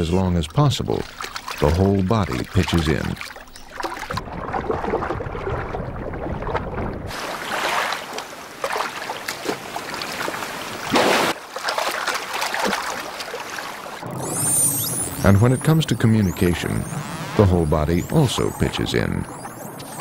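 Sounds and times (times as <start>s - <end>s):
underwater rush: 0.0s - 20.0s
water splashing and rushing: 0.0s - 20.0s
wind: 0.0s - 20.0s.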